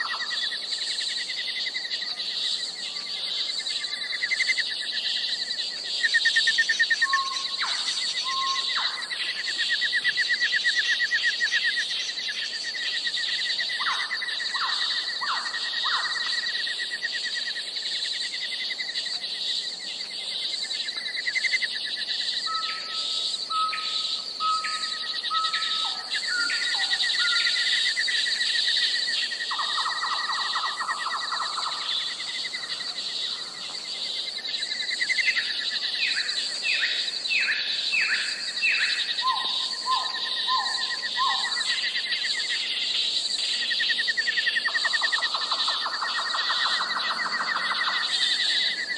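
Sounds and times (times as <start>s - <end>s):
insects droning and trilling: 0.0s - 48.9s
birds whistling calls: 6.9s - 9.2s.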